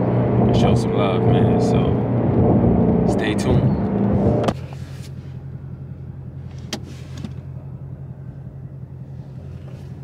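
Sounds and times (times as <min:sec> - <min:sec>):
car engine humming: 0:00.0 - 0:10.0.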